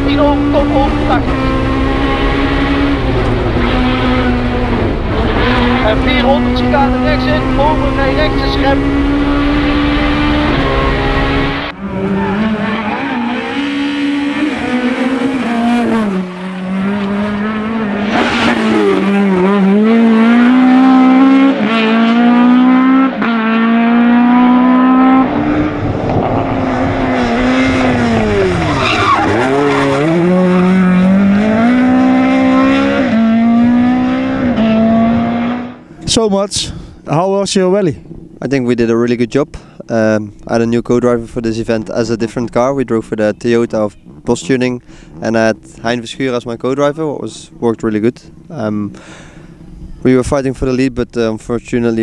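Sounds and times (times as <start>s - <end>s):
rally car engine revving hard: 0.0s - 35.8s.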